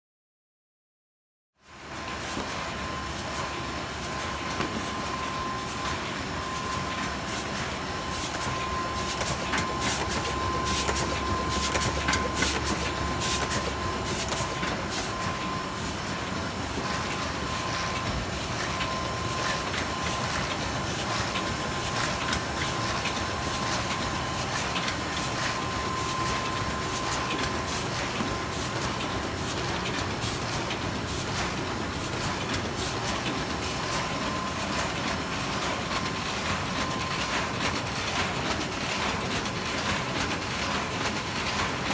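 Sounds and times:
machine clattering and clicking: 6.9 - 41.9.

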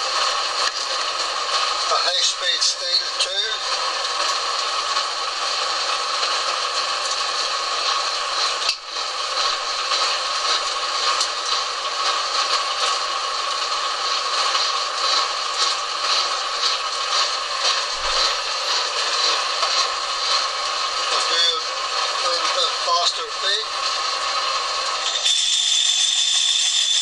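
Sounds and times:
lathe humming: 17.0 - 25.2
faint scraping: 17.9 - 19.3.

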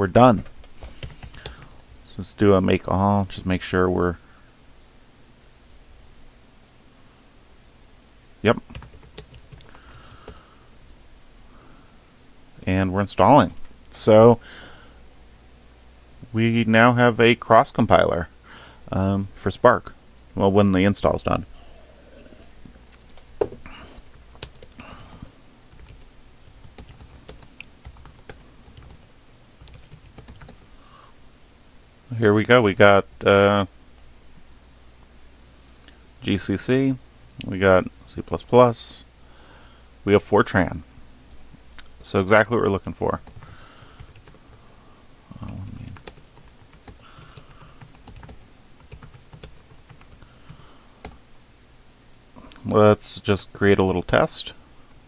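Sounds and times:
typing on computer keyboard: 0.8 - 1.7, 8.7 - 10.4, 24.3 - 30.6, 43.2 - 44.6, 46.0 - 50.3.

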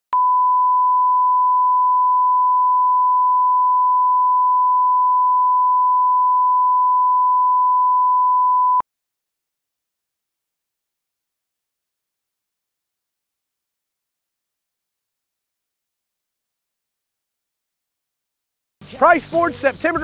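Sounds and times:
sine wave reference tone: 0.2 - 8.8.

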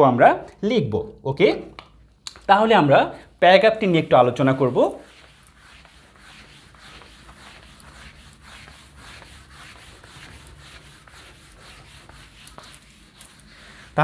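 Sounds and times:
eraser wiping a whiteboard: 3.7 - 14.0.

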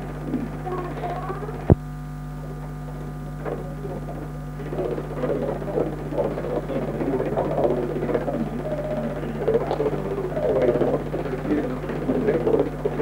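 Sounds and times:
electrical mains hum: 0.0 - 13.0
crowd murmur: 3.5 - 13.0.

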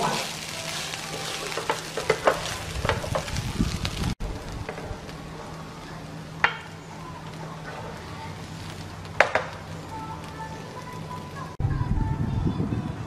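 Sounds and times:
spatula scraping and knocking pan: 0.0 - 4.0
rice sizzling in a frying pan: 0.0 - 11.6.

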